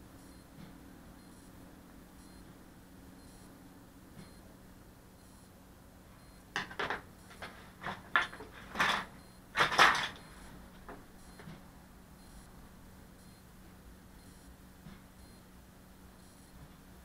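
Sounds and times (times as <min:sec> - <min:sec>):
small objects clattering on workbench: 0:06.6 - 0:10.2.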